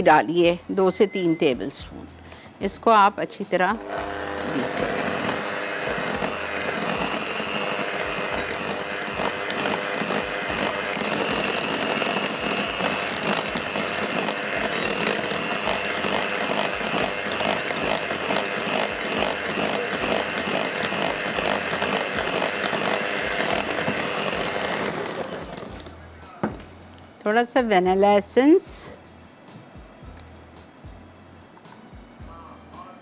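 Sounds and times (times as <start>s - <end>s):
electric hand mixer rattling: 3.8s - 25.9s.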